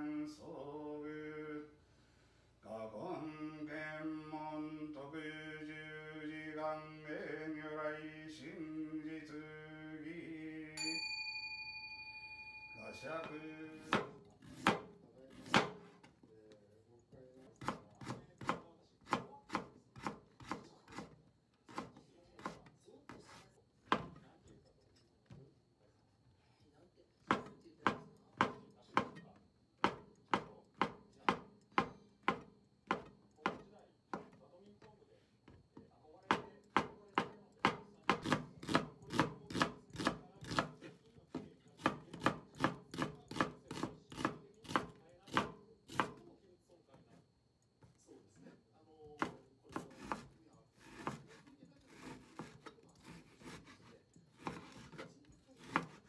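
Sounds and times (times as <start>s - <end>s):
knife knocking on cutting board: 13.2s - 16.1s, 27.3s - 34.4s, 36.3s - 46.2s.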